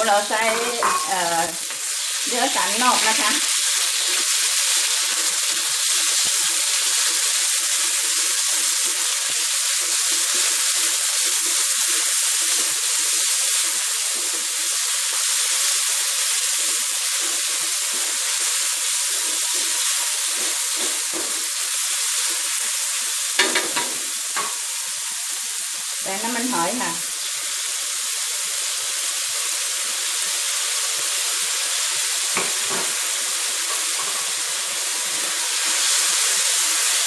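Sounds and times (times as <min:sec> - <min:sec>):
meat frying in hot oil: 0:00.0 - 0:37.0.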